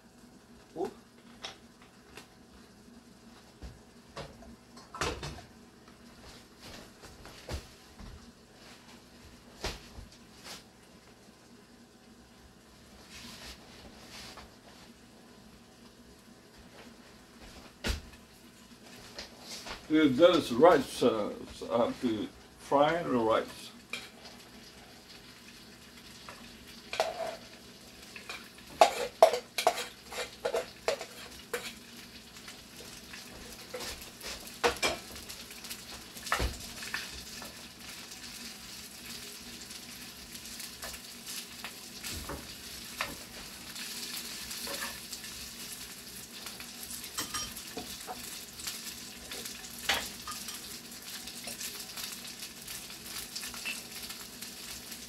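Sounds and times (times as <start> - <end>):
rice sizzling in pan: 0.0 - 55.0
utensils knocking and scraping pan: 26.9 - 27.4, 28.3 - 31.8.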